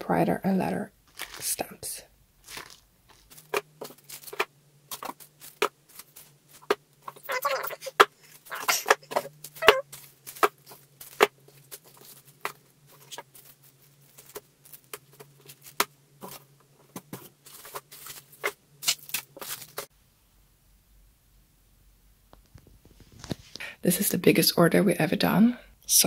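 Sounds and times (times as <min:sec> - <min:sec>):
plastic wrap crinkling: 0:01.1 - 0:01.7, 0:02.4 - 0:16.5, 0:17.3 - 0:19.9.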